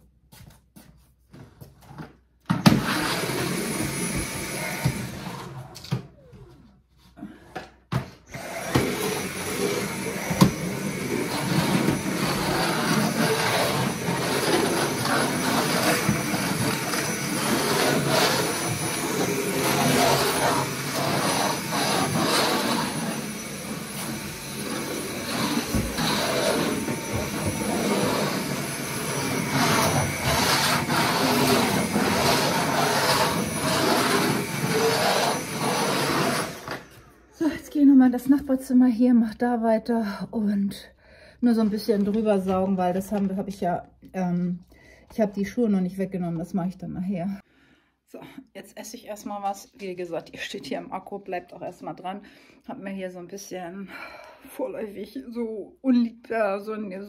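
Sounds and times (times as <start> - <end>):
vacuum cleaner running: 2.5 - 6.3, 8.3 - 37.6.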